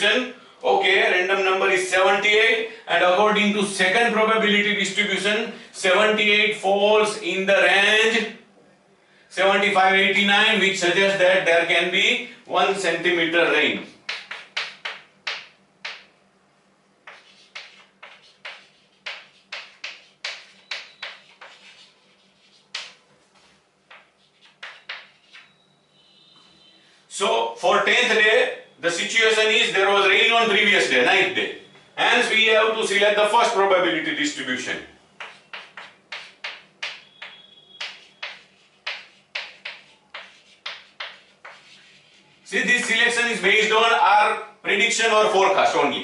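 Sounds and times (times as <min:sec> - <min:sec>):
chalk scratching on a blackboard: 0:14.0 - 0:16.1, 0:17.1 - 0:25.6, 0:35.2 - 0:43.2.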